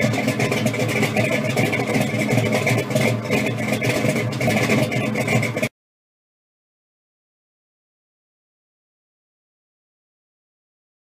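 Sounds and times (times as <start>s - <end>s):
car engine idling: 0.0s - 5.7s.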